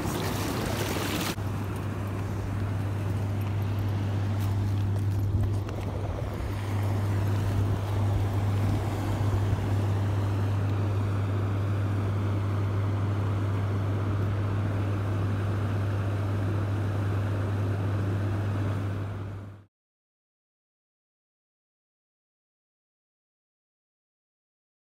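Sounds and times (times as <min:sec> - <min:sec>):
constant rushing noise: 0:00.0 - 0:13.0
steady low hum: 0:00.0 - 0:19.7.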